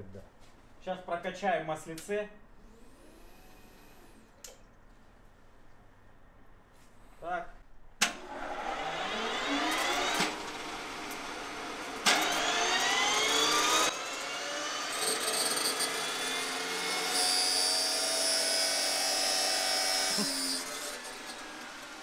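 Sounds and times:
turbine engine whine: 8.2s - 14.8s.

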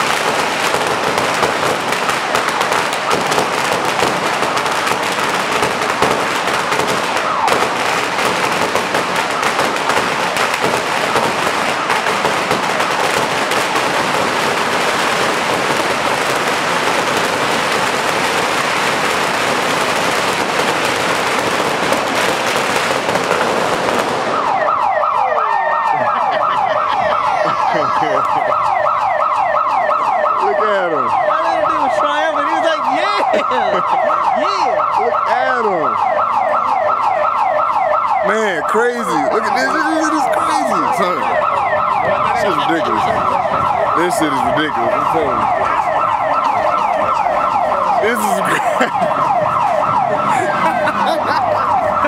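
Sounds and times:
firecrackers crackling: 0.0s - 25.2s, 25.9s - 29.9s, 35.6s - 52.0s
electronic siren wailing: 0.5s - 52.0s.

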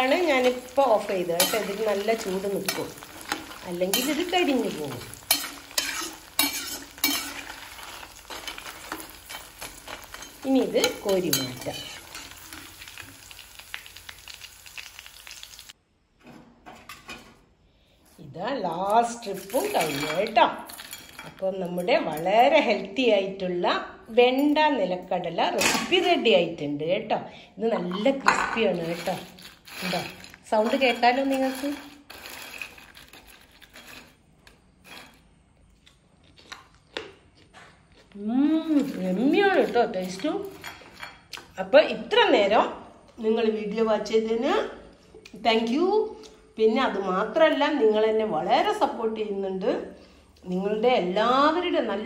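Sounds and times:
hot oil sizzling: 0.0s - 15.8s
crisp fritters crunching: 0.1s - 11.0s, 11.9s - 15.7s, 35.7s - 39.8s.

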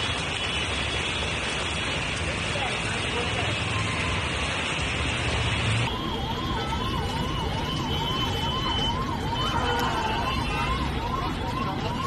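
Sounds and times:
heavy rain and running water: 0.0s - 12.0s
traffic noise: 0.0s - 12.0s
emergency siren wailing: 2.6s - 12.0s.

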